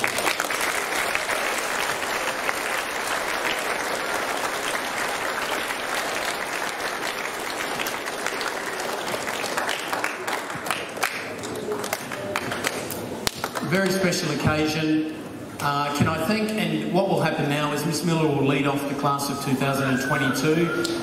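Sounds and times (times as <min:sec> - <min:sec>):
large audience applauding: 0:00.0 - 0:13.7.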